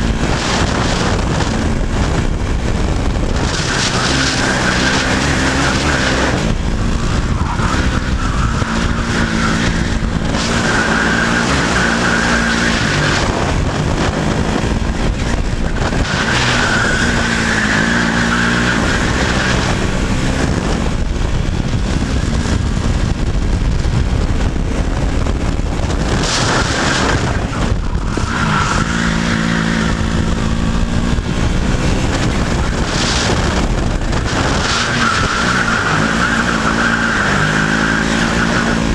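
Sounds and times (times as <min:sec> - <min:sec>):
kart engine revving: 0:00.0 - 0:38.9.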